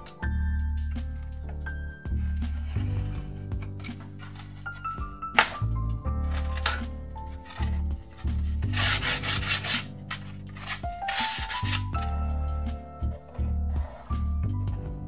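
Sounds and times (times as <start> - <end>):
sandpaper sanding wood: 8.4 - 12.0.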